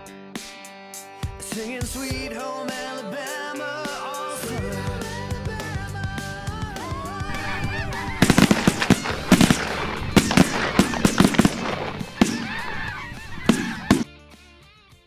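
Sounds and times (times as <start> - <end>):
geese honking: 6.3 - 14.1
shotgun blasts: 7.3 - 14.1.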